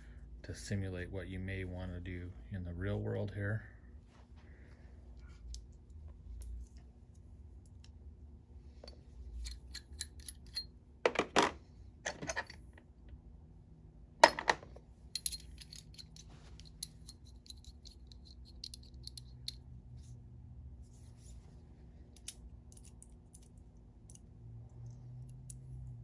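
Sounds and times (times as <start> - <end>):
light metal clicks of tools: 8.8 - 10.8, 15.1 - 20.1, 22.1 - 26.0.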